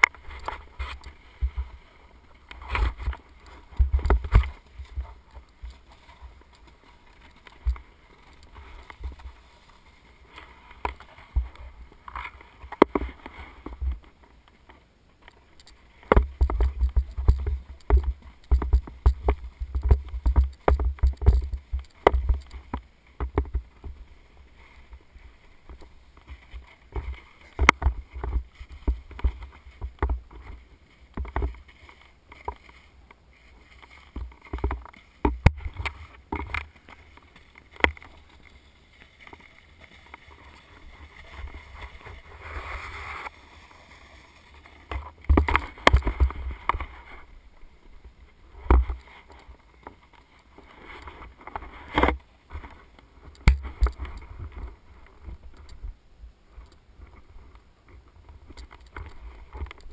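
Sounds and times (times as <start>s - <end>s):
snowboard knocks and thumps: 16.1s - 24.0s
snowboard scraping on snow: 38.1s - 47.1s.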